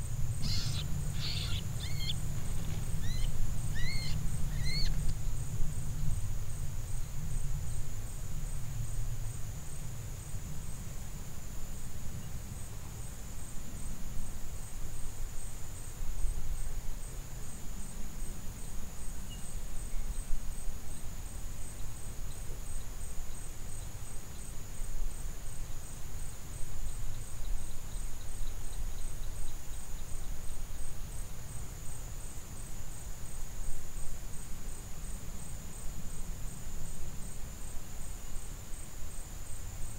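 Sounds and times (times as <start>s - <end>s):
low uneven rumble: 0.0s - 10.1s
insect chorus trilling: 0.0s - 10.3s, 21.6s - 39.9s.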